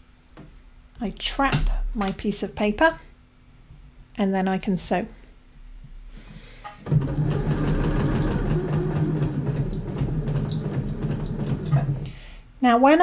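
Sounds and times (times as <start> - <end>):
electric sewing machine running: 6.9 - 12.1.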